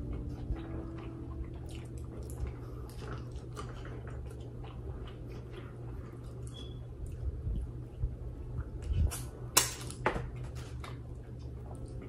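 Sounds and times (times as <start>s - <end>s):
person chewing food: 0.0s - 9.4s
steady low hum: 0.0s - 12.0s.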